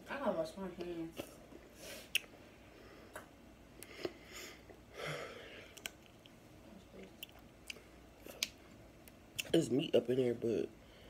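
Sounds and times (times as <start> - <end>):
soft breath: 3.8 - 5.8.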